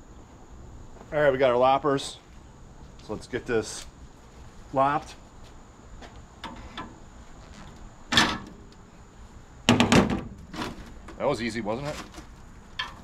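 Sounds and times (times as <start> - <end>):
metal clanks: 12.8 - 13.0.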